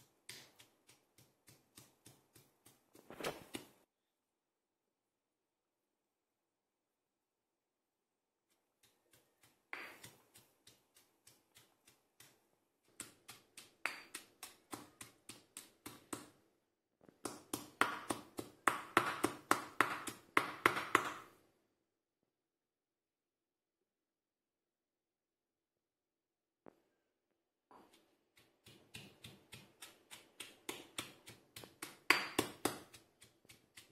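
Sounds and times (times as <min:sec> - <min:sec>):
stone pestle pounding in mortar: 0:00.2 - 0:02.9, 0:09.1 - 0:16.4, 0:17.2 - 0:21.3, 0:27.9 - 0:33.9.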